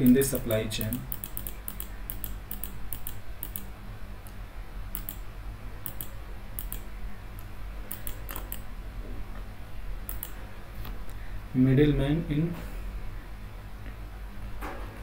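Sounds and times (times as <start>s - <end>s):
low electrical hum: 0.0s - 15.0s
light sharp clicks: 10.1s - 11.2s.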